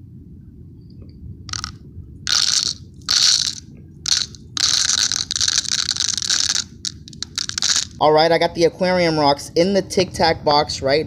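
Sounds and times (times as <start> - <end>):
gravel clattering in plastic box: 1.5 - 1.7, 2.3 - 8.0.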